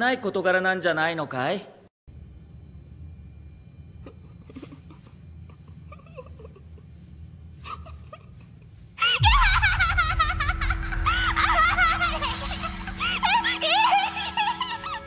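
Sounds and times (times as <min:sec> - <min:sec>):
steady low tone: 0:02.1 - 0:15.0
girl giggling: 0:04.1 - 0:06.9, 0:07.6 - 0:15.0
loud high-pitched laughter: 0:09.0 - 0:15.0
deep boom: 0:09.2 - 0:15.0.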